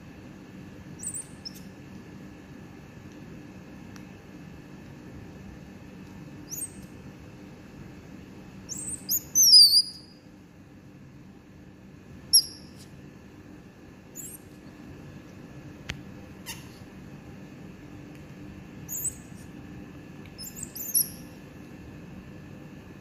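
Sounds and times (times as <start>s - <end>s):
faint steady hum: 0.0s - 23.0s
baby monkey squeaking: 1.0s - 1.7s, 6.5s - 6.8s, 8.7s - 10.2s, 12.3s - 12.8s, 14.2s - 14.4s, 16.4s - 16.8s, 18.9s - 19.3s, 20.4s - 21.3s.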